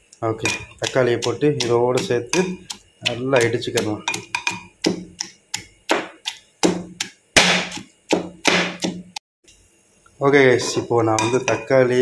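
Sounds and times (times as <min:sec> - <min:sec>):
pestle pounding in mortar: 0:00.4 - 0:09.2.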